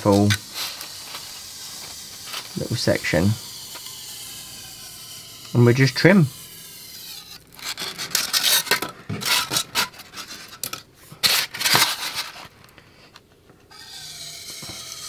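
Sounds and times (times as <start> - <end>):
foam scratching and scraping: 0.0 - 3.6, 4.2 - 12.6.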